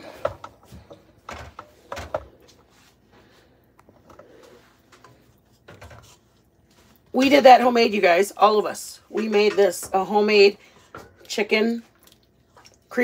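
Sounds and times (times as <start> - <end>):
cookware knocks and clatter: 9.1 - 10.2.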